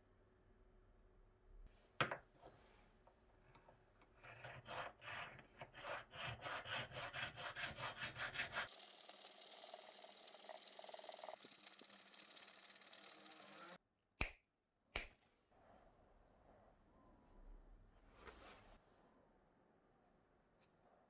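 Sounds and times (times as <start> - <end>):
file rasping in wood: 4.2 - 8.9.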